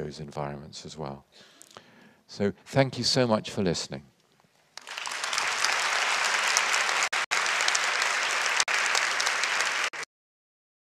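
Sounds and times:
audience applauding: 0:04.8 - 0:10.1.

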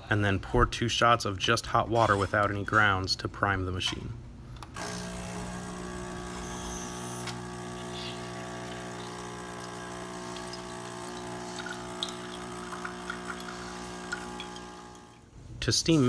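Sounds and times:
espresso machine pump humming: 0:04.8 - 0:15.3.

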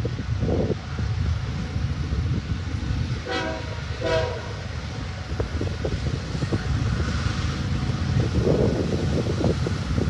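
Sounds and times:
low train rumble: 0:00.0 - 0:10.0
locomotive air horn blasts: 0:03.2 - 0:05.1.

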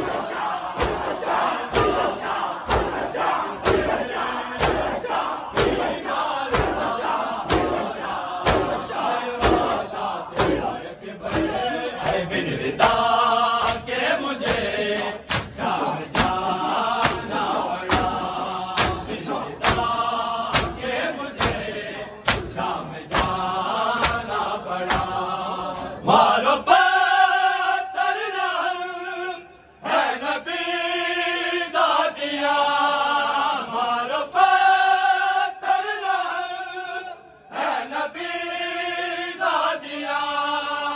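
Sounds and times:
rhythmic chest-beating: 0:00.0 - 0:26.4
men chanting in unison: 0:00.0 - 0:40.9.

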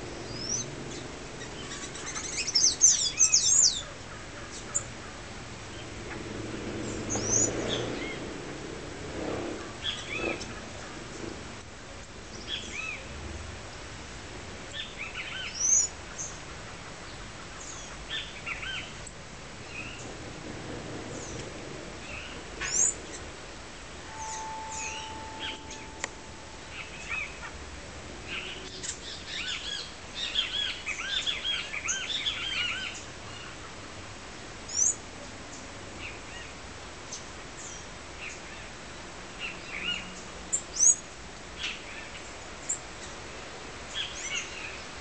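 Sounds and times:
songbirds chirping and calling: 0:00.2 - 0:06.0, 0:06.8 - 0:08.3, 0:14.7 - 0:19.1.

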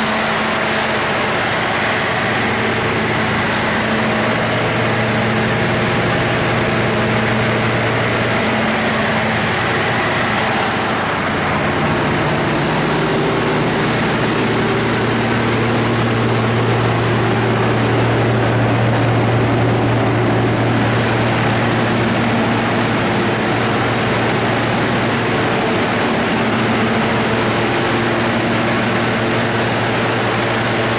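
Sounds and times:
diesel generator engine running: 0:00.0 - 0:30.9.

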